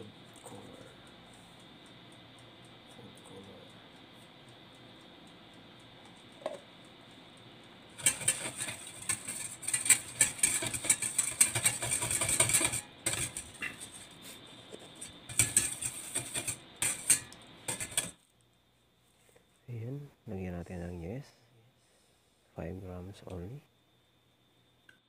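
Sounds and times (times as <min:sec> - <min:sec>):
whisk clinking in metal bowl: 0:08.0 - 0:14.0, 0:15.0 - 0:18.2.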